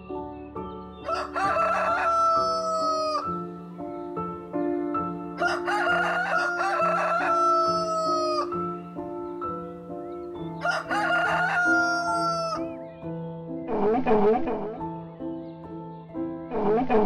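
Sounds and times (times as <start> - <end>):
soft background music: 0.0 - 17.0
rooster crowing: 1.0 - 3.4, 5.4 - 8.7, 10.5 - 12.7.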